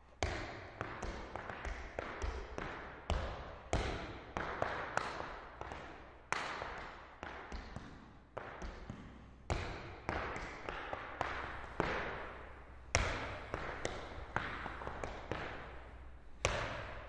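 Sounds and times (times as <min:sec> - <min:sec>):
hard shoes clacking on floor: 0:09.5 - 0:17.0.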